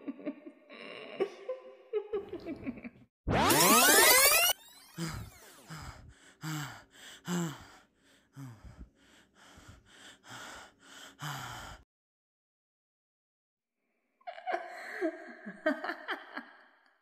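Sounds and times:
boy gasping and panting: 5.0 - 11.8.

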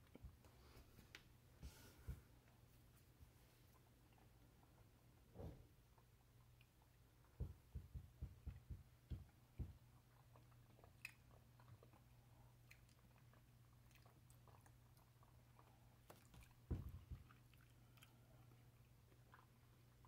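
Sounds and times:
faint low hum: 0.0 - 20.0.

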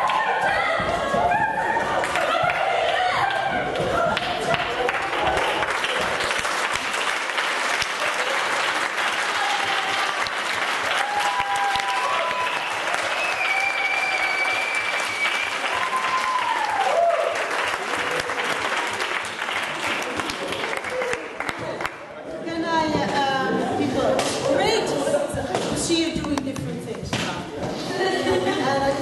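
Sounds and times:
audience clapping: 1.9 - 22.2.

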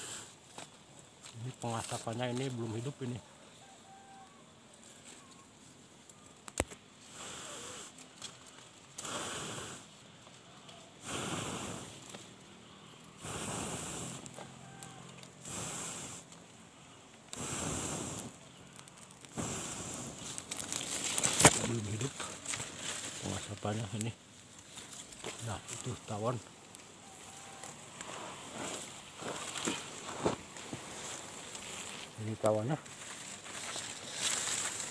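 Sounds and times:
person blowing in puffs: 7.0 - 8.0, 9.0 - 9.9, 11.0 - 12.0, 13.2 - 14.3, 15.4 - 16.3, 17.4 - 18.4, 19.3 - 20.5.

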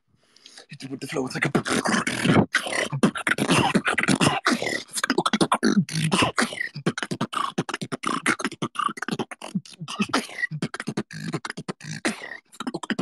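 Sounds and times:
beatboxing: 0.4 - 13.0.

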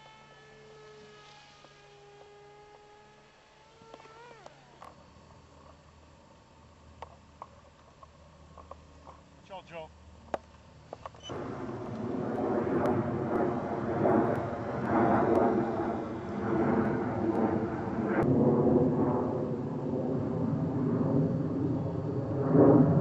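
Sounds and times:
model plane electric motor and propeller: 0.0 - 18.3.

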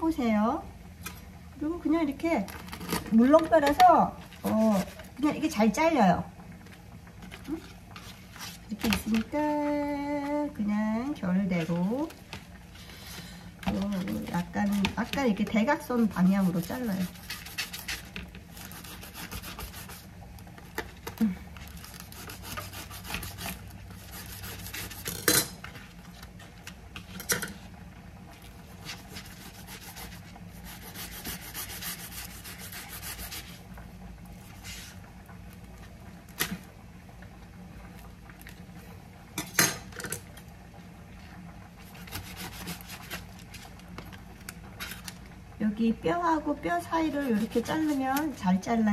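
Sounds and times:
knife slicing raw fish: 16.4 - 20.1, 21.9 - 25.3, 28.8 - 33.5, 42.0 - 43.3.

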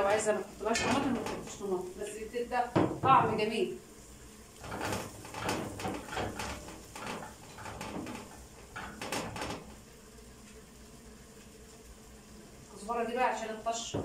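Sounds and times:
spatula scraping a pot: 4.6 - 9.8.

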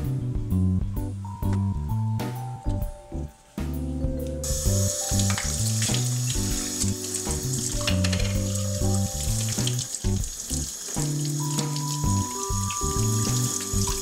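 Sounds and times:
lounge music: 0.0 - 14.0
tap water running: 4.4 - 14.0.

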